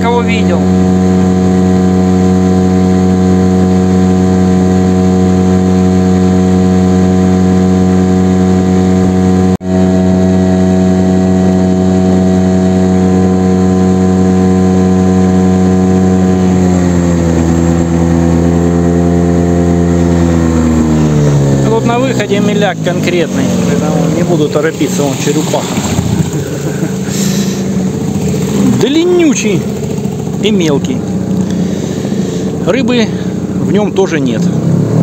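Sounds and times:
outboard motor running: 0:00.0 - 0:35.0.

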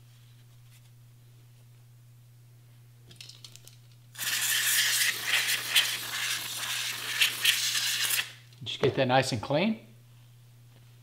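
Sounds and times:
aerosol can spraying: 0:04.2 - 0:08.4.

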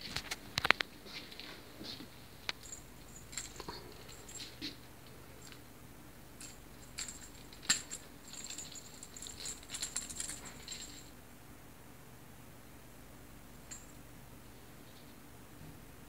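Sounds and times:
light metallic jingling and clicking: 0:02.4 - 0:05.7, 0:06.4 - 0:11.1, 0:13.7 - 0:14.0.

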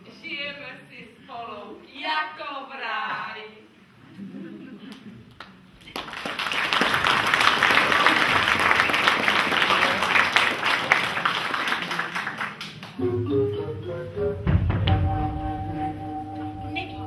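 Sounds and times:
audience applauding: 0:05.4 - 0:13.0
music: 0:13.0 - 0:17.0.

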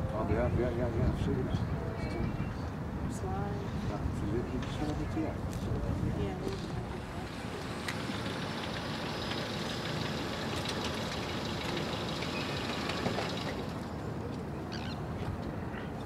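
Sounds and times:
low engine rumble: 0:03.3 - 0:16.0.

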